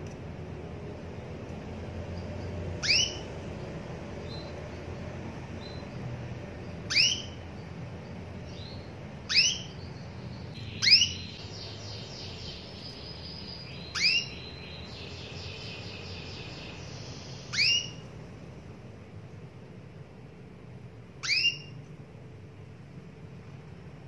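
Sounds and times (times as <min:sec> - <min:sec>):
soft high twittering: 0:02.1 - 0:18.1
canary call notes: 0:02.4 - 0:03.6, 0:06.7 - 0:07.8, 0:08.5 - 0:18.1, 0:21.2 - 0:21.8.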